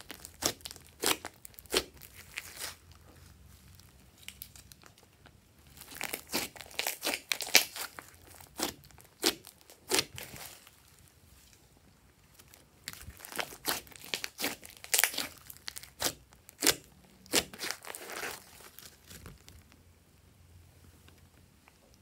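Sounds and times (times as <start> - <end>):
slime popping and crackling: 0.0 - 2.8, 5.6 - 10.7, 12.4 - 19.7.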